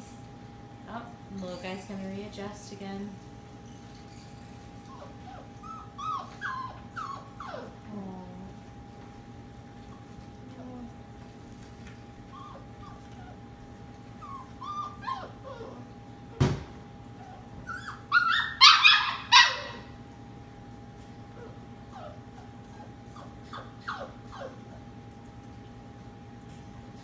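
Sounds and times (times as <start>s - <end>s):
steady low hum: 0.0s - 27.0s
puppy whimpering and whining: 3.7s - 8.2s, 9.1s - 10.9s, 12.2s - 16.4s, 17.1s - 19.9s, 21.3s - 24.9s, 26.5s - 27.0s
puppy yips: 4.1s - 7.8s, 14.2s - 15.8s, 17.2s - 19.9s, 21.4s - 24.8s.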